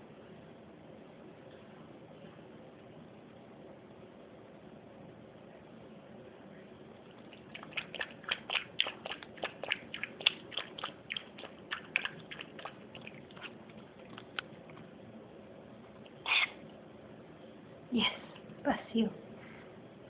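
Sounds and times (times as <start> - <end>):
puppy clicking at a bowl: 7.3 - 14.8.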